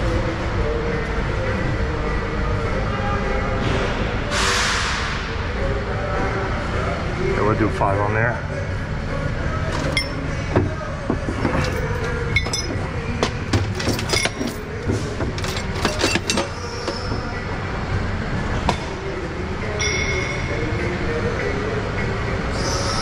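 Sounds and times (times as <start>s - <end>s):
low mechanical rumble: 0.0s - 23.0s
chains clinking and rattling: 9.7s - 10.6s, 11.3s - 17.3s.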